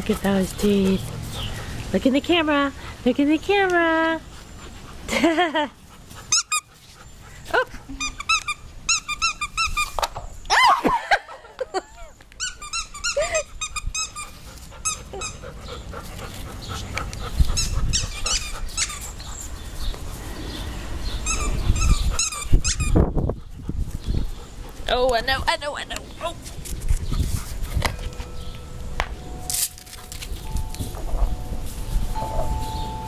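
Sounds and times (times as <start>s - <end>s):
dogs whining and yipping: 6.1s - 11.1s, 11.8s - 19.9s, 21.1s - 23.5s, 29.3s - 33.0s.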